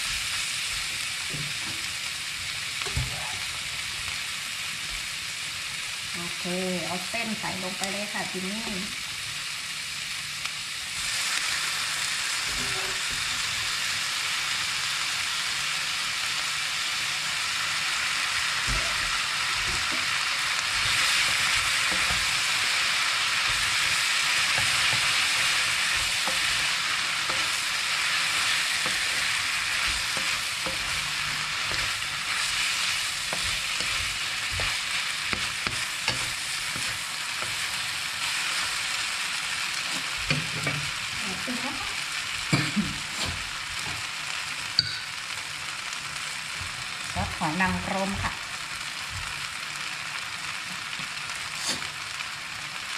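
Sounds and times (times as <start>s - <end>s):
noodles sizzling in a pan: 0.0s - 52.9s
stirring scrapes and clicks: 28.3s - 37.7s.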